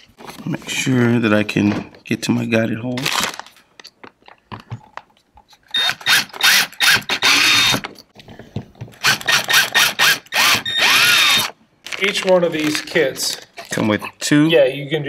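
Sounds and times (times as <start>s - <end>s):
cordless drill driving screws: 5.7s - 7.9s, 9.0s - 11.6s.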